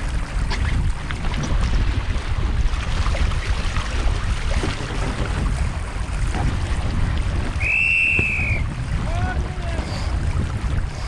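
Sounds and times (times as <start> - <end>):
gusty wind on microphone: 0.0 - 11.0
water splashing along a hull: 0.0 - 11.0
high whistling tone: 7.6 - 8.7.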